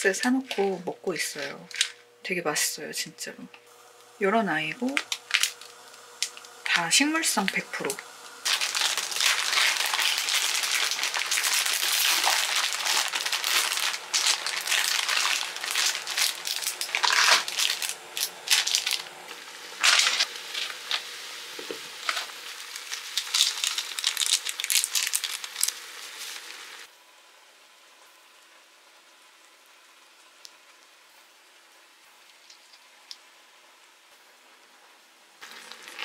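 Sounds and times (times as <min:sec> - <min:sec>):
plastic packaging crinkling: 0:01.2 - 0:02.0, 0:04.8 - 0:06.6, 0:07.4 - 0:21.0, 0:22.0 - 0:26.7.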